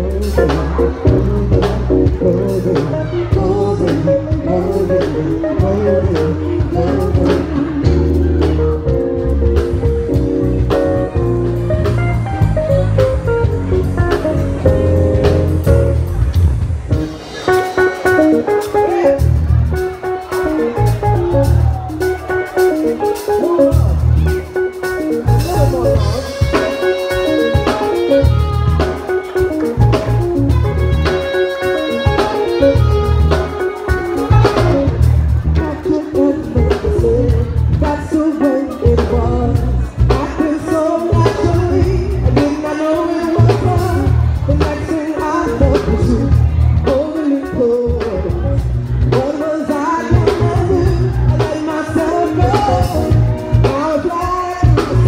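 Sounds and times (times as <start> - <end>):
woman singing: 0.0 - 8.3
keyboard chords: 0.0 - 55.0
live band music: 0.0 - 55.0.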